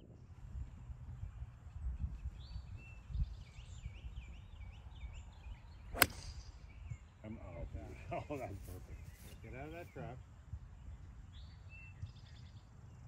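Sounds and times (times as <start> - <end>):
golf club striking ball: 6.0 - 6.4.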